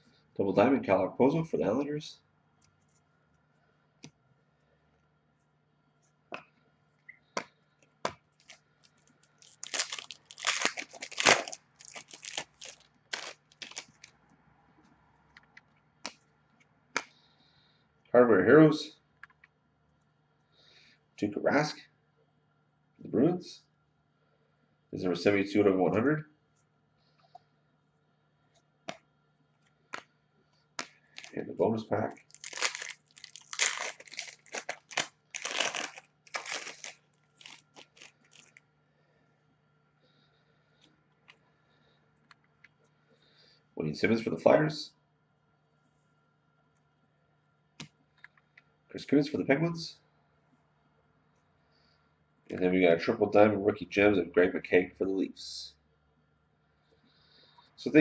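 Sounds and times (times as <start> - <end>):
cards rustling and scraping: 8.4 - 14.1, 30.8 - 31.4, 32.2 - 38.6
foil wrapper crinkling: 8.4 - 14.1, 30.8 - 31.4, 32.1 - 38.6.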